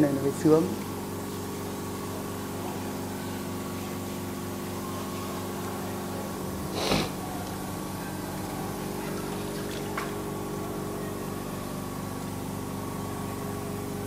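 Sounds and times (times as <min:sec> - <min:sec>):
steady mechanical hum: 0:00.0 - 0:14.0
burst of hiss: 0:06.7 - 0:07.2.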